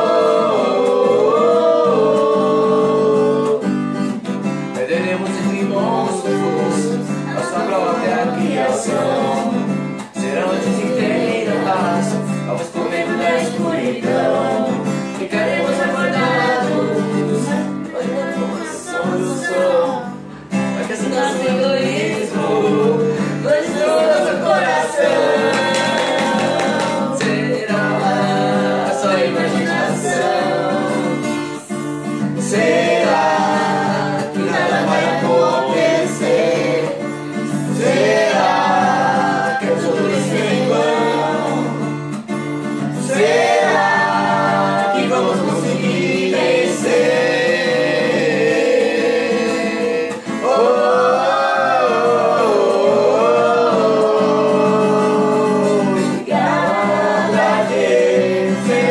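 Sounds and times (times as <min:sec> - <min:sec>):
people singing together: 0:00.0 - 0:58.9
strummed acoustic guitar: 0:00.0 - 0:58.9.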